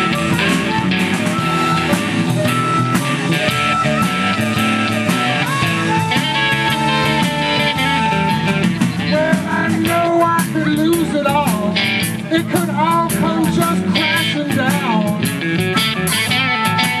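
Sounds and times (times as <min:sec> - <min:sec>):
harmonica solo: 0:00.0 - 0:09.3
drum kit: 0:00.0 - 0:17.0
electric bass: 0:00.0 - 0:17.0.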